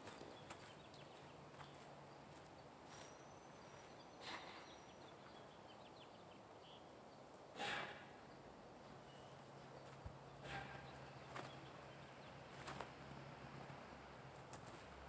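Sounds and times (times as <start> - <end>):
footsteps on dirt and gravel: 0.0 - 4.6, 9.8 - 15.0.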